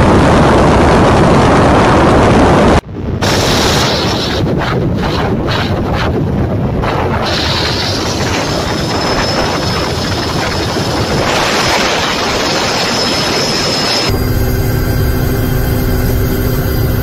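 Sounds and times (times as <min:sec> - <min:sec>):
helicopter rotor and engine noise: 0:00.0 - 0:17.0
wind over microphone: 0:00.0 - 0:17.0
thin high whine: 0:06.8 - 0:17.0.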